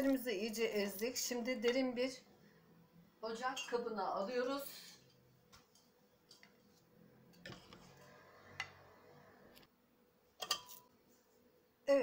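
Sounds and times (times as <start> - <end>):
utensil tapping metal pot: 10.4 - 10.9.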